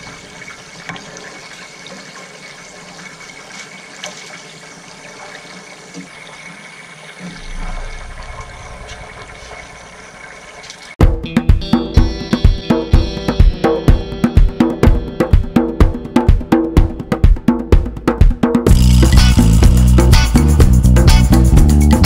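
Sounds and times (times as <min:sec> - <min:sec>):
drum-kit music: 0:11.0 - 0:22.0.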